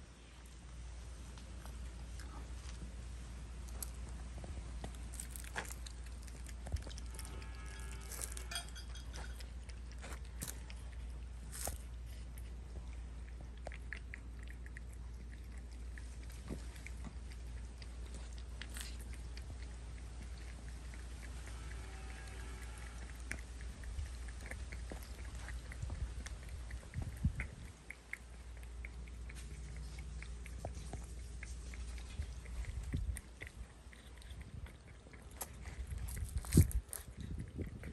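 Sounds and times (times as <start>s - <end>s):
cats licking and chewing: 0.0s - 37.9s
small clinks on metal tin: 7.8s - 9.4s.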